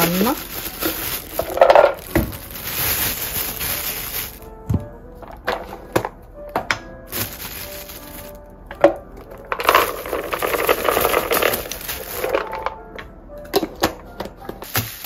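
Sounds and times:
dense rustling: 0:00.0 - 0:06.0, 0:07.1 - 0:08.5, 0:09.2 - 0:12.7
soft background music: 0:00.0 - 0:15.0.

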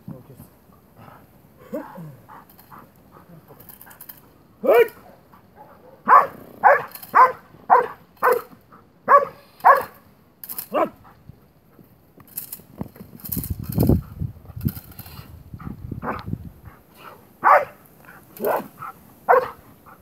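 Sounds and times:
dog barking: 0:04.6 - 0:08.5, 0:09.1 - 0:10.0, 0:10.7 - 0:11.0, 0:17.4 - 0:17.8, 0:18.4 - 0:19.6.

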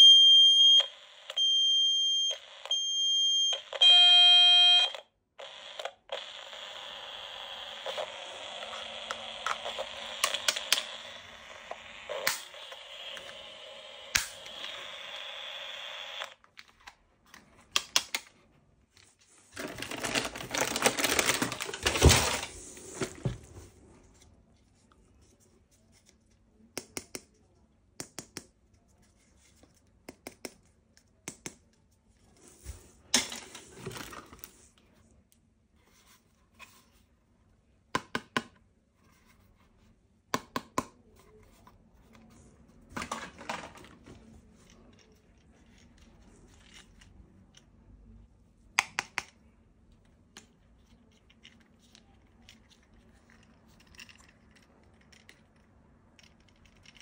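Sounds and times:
plastic toy parts clicking: 0:09.1 - 0:11.2
packaging rustling and tearing: 0:19.4 - 0:23.2.

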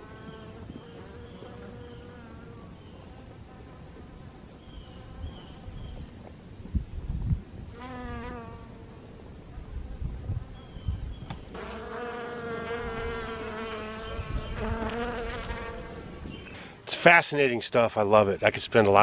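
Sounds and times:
honeybees buzzing: 0:00.0 - 0:06.0, 0:07.7 - 0:16.8.

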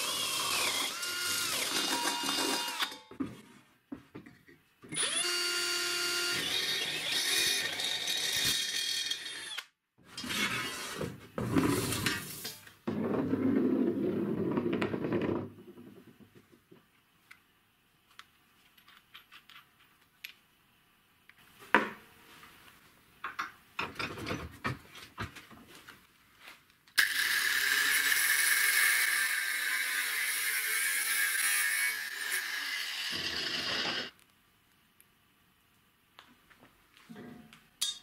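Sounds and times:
angle grinder grinding metal: 0:00.0 - 0:03.1, 0:05.0 - 0:10.9, 0:27.0 - 0:34.1.

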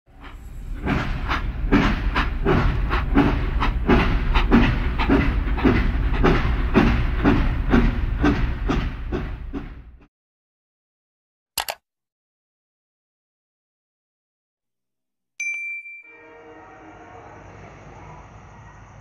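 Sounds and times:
train passing at speed: 0:00.1 - 0:10.1, 0:16.1 - 0:19.0
train wheels clicking over rail joints: 0:00.1 - 0:10.1.

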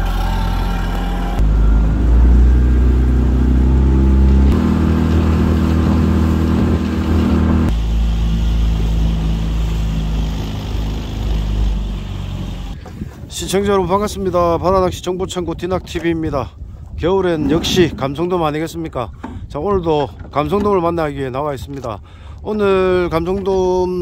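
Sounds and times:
outboard motor running: 0:00.0 - 0:13.3.

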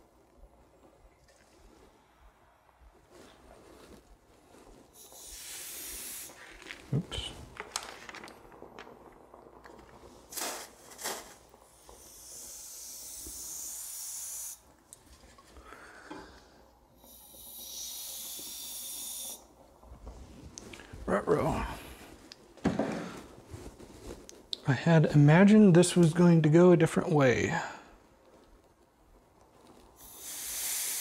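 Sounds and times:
compressed air can hissing: 0:04.9 - 0:06.9, 0:10.3 - 0:14.7, 0:17.0 - 0:19.5, 0:30.0 - 0:31.0.

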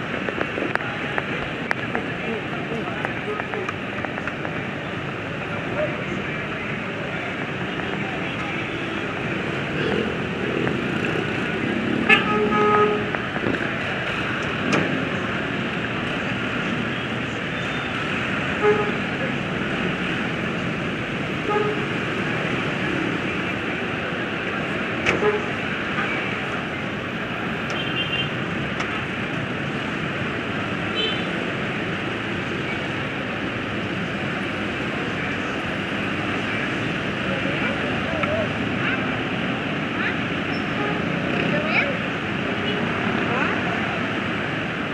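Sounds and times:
congested road traffic: 0:00.0 - 0:44.9
vehicle horn honking: 0:12.1 - 0:13.1, 0:18.6 - 0:19.0, 0:21.4 - 0:21.9.

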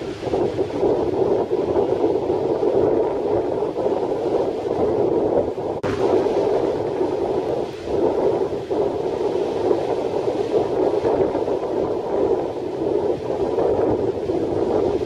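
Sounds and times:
strong wind: 0:00.0 - 0:15.0
breaking surf: 0:05.7 - 0:15.0.

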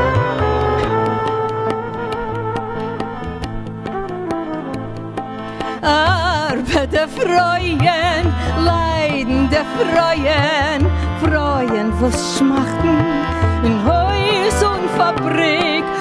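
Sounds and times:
lead melody with fast vibrato: 0:00.0 - 0:16.0
tabla strokes: 0:00.0 - 0:16.0.

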